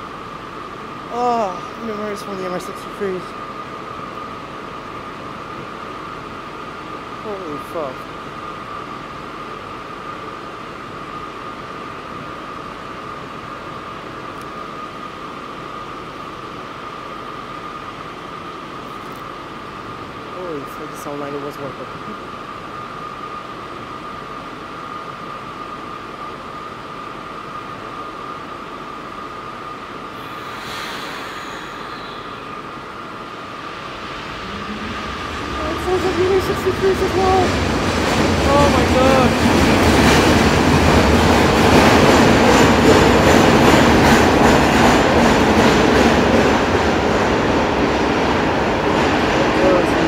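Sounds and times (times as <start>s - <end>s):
train rolling past: 0.0s - 50.0s
high-pitched whine: 19.8s - 39.5s
machinery hiss and whir: 21.9s - 39.3s.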